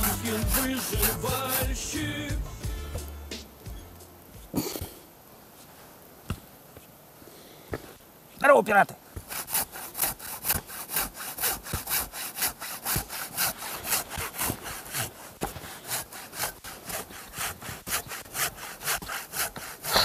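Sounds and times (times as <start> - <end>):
hand saw cutting log: 0.0 - 2.1, 9.2 - 20.0.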